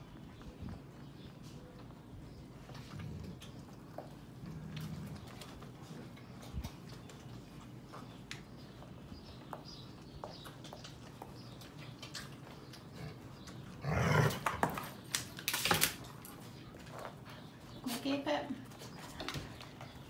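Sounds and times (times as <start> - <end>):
faint clicks and smacks: 0.0 - 13.7
puppies nursing and scuffling: 0.0 - 20.0.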